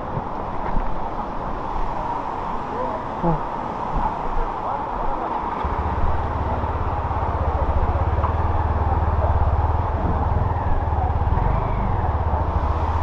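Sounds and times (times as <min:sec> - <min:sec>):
motorcycle engine running at low revs: 0:05.6 - 0:13.0.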